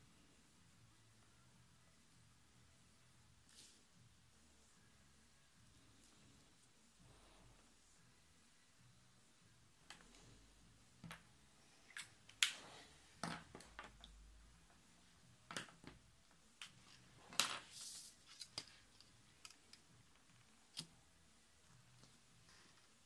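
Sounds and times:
sliding rustle on paper: 17.6s - 18.9s.

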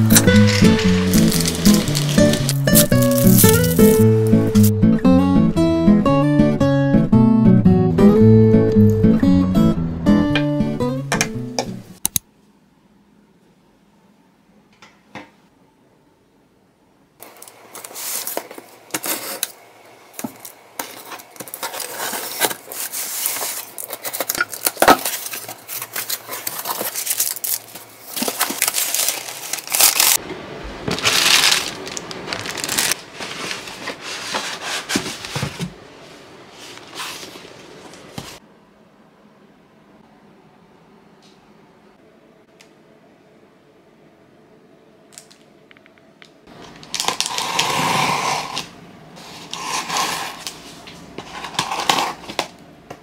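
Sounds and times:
cardboard box being unpacked: 0.0s - 4.7s, 20.8s - 30.2s, 30.9s - 35.7s, 46.8s - 48.6s
packing material crinkling: 0.0s - 4.7s, 20.2s - 30.2s, 30.8s - 35.6s, 46.5s - 48.2s
tearing: 0.0s - 4.7s, 21.4s - 30.2s, 46.9s - 48.7s.

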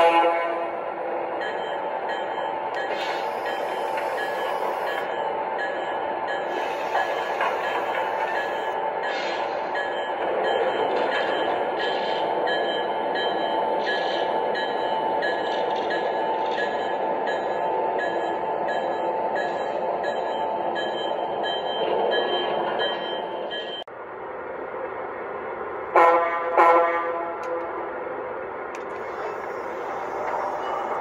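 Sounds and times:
model train rolling rumble: 28.7s - 31.0s.

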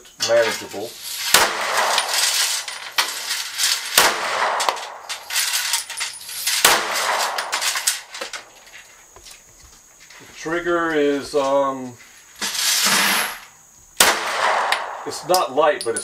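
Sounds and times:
pistol shots: 1.2s - 2.7s, 3.8s - 5.0s, 6.6s - 7.8s, 14.0s - 15.4s.

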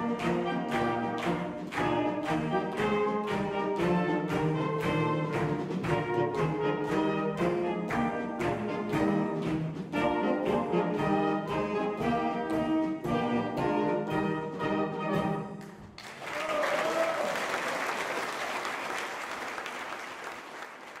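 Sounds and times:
wind band playing: 0.0s - 16.0s
audience applauding: 15.6s - 21.0s
single cheer: 16.2s - 18.2s.

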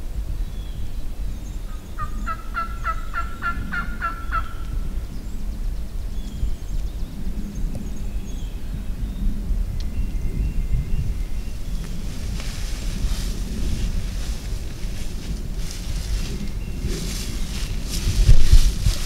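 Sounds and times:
steady low rumble: 0.0s - 19.0s
wild turkey calling: 1.7s - 4.8s.

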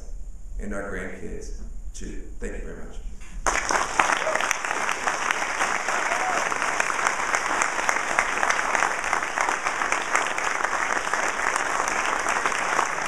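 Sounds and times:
audience applauding: 3.4s - 13.0s.

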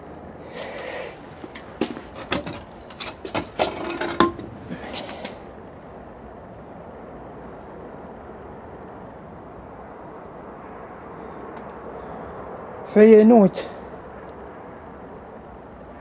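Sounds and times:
rustling: 0.5s - 5.4s
iron knocks and clanks on stone: 2.2s - 4.7s.

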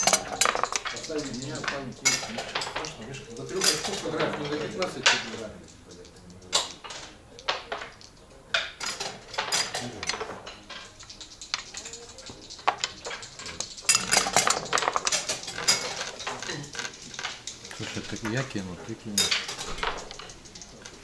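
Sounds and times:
game pieces clicking on board: 0.0s - 21.0s.

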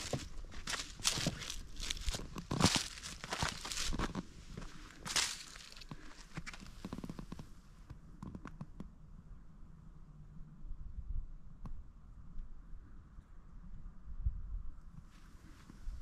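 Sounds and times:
footsteps crunching dry leaves: 0.0s - 7.0s.

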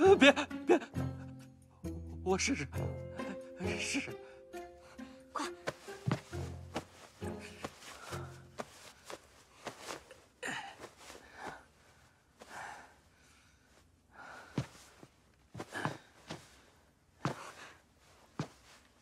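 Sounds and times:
rustling of cloth robes: 5.4s - 19.0s
footsteps on wooden floor: 5.6s - 10.1s, 17.3s - 17.5s, 18.4s - 18.6s
quiet breaths: 6.8s - 19.0s.

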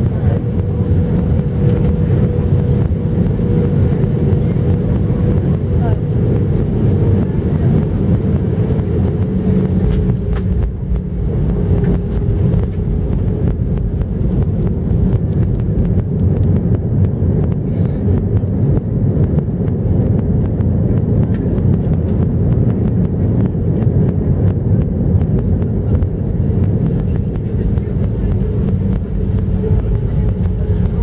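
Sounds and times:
engine and wheel rumble: 0.0s - 31.0s
low hum: 0.0s - 31.0s.

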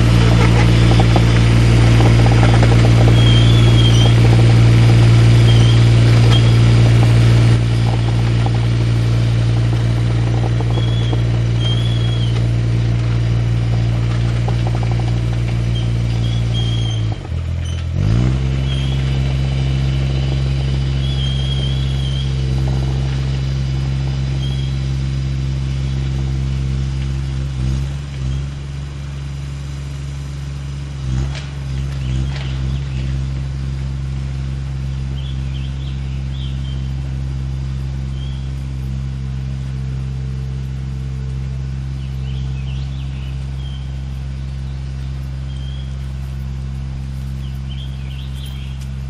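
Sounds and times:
engine humming: 0.0s - 49.0s
faint bird chirps: 3.1s - 4.2s, 10.7s - 12.4s, 24.4s - 24.8s, 38.1s - 38.6s, 41.9s - 46.2s, 47.3s - 48.9s.

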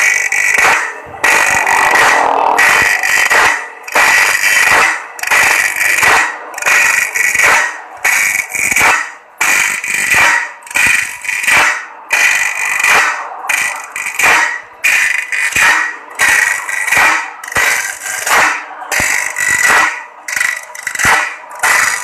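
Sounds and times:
grinding wheel rasping on blade: 0.0s - 7.4s, 20.3s - 22.0s.

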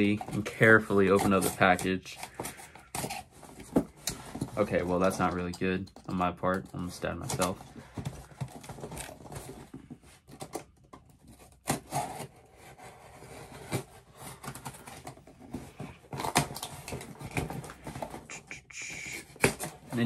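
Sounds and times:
cardboard box being cut open: 11.5s - 15.1s.

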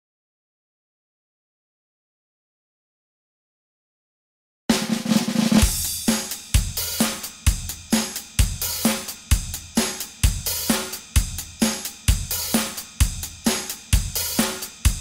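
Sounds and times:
background music with drum beat: 4.7s - 15.0s.

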